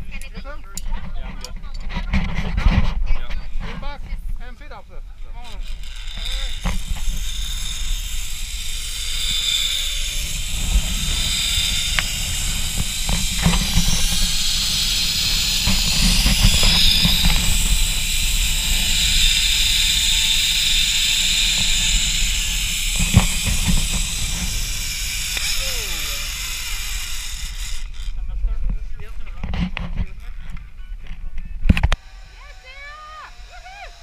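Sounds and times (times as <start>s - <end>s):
wind rumbling on microphone: 0.0s - 32.0s
zip line pulleys whirring on cable: 5.4s - 28.2s, 31.9s - 34.0s.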